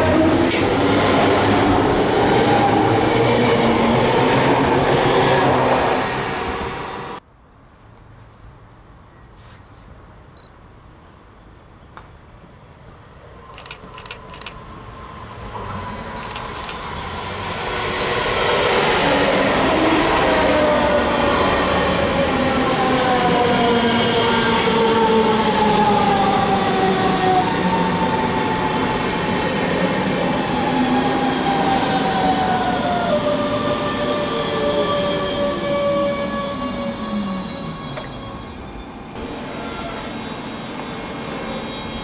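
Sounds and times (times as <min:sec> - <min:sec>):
electric train motors whining: 0:39.2 - 0:42.0.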